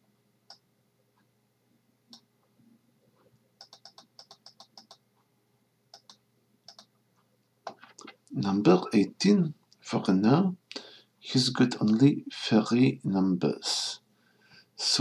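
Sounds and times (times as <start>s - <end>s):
computer mouse clicks: 3.6s - 5.0s, 5.9s - 6.9s.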